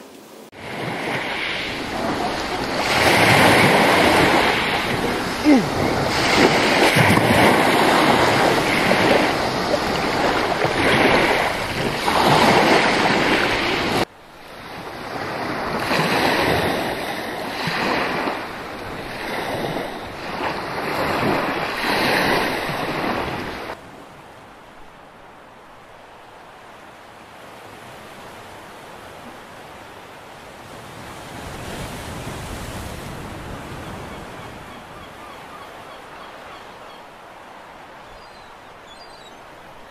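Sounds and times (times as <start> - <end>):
waves washing up pebble beach: 0.0 - 23.8.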